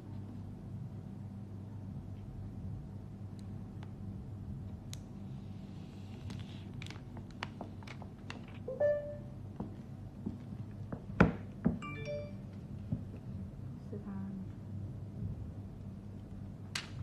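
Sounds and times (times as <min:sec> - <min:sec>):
brief high tones: 0:08.7 - 0:09.4.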